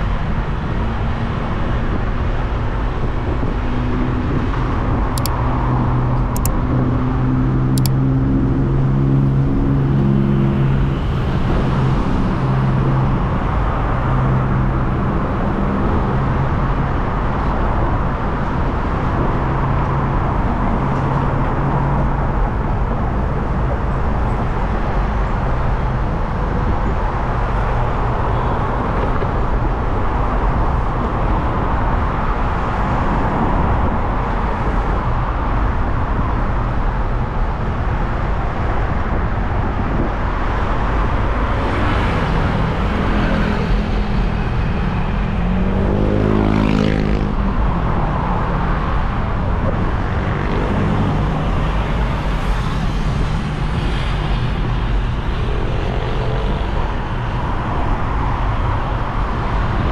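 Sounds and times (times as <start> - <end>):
motor vehicle engine hum: 0.0 - 59.9
road noise: 0.0 - 59.9
sharp click: 5.2 - 5.4, 6.2 - 6.6, 7.8 - 8.0.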